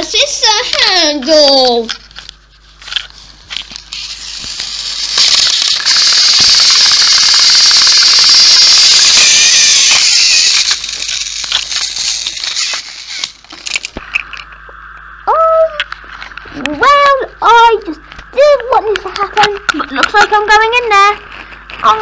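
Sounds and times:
toy train motors whirring: 0:00.0 - 0:02.0, 0:02.8 - 0:14.3
rattle with clicks: 0:03.9 - 0:14.4.

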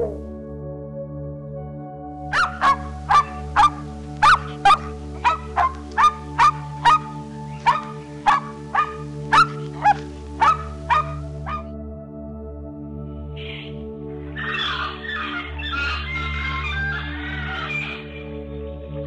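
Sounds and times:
soft background music: 0:00.0 - 0:19.0
dog barking: 0:02.3 - 0:11.7.

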